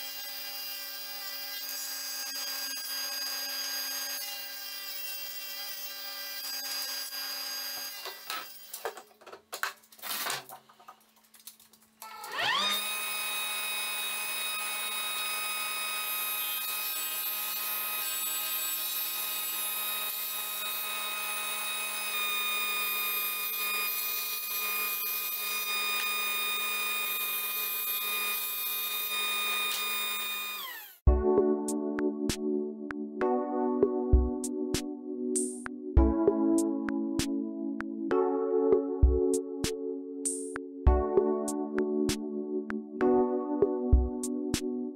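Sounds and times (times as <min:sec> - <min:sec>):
table saw cutting plywood: 0:00.0 - 0:08.9, 0:12.0 - 0:31.1.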